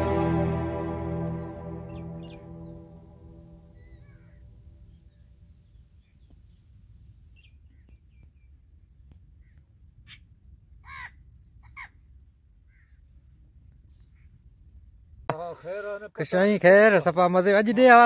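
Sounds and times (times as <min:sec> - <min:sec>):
crows cawing: 0:10.9 - 0:11.2.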